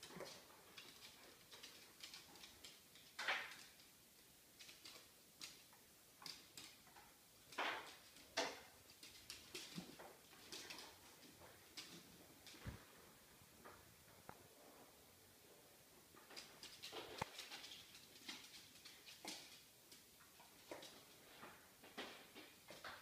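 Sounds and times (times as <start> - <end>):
dog claws clicking on wooden floor: 0.0 - 12.6, 16.2 - 21.2.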